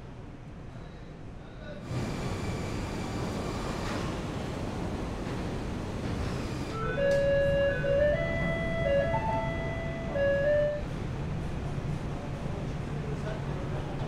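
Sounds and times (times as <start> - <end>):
factory machinery hum: 1.7 - 14.0.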